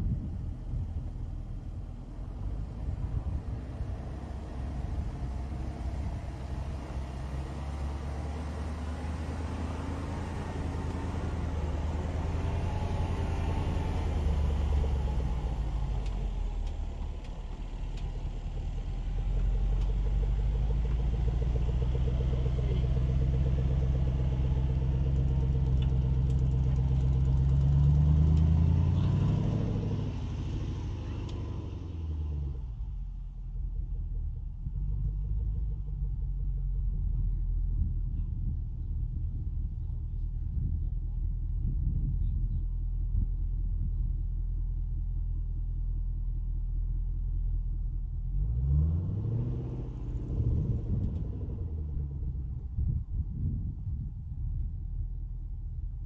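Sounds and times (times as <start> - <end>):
car engine driving past: 0.0 - 38.5, 47.7 - 53.5.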